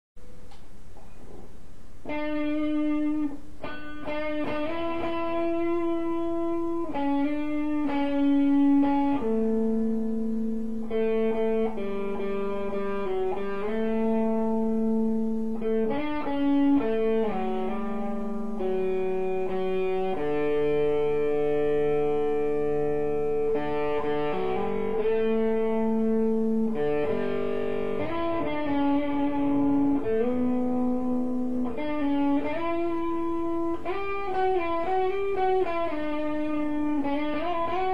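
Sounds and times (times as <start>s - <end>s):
electric guitar melody: 0.2s - 37.9s.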